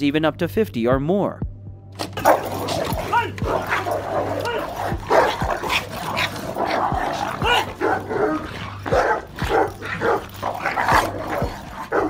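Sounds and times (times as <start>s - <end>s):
dogs barking: 2.0s - 12.0s.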